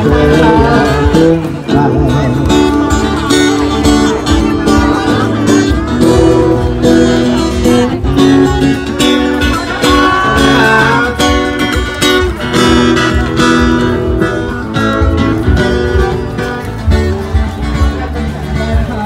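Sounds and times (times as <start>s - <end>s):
person singing: 0.0s - 11.8s
acoustic guitar strumming: 0.0s - 19.0s.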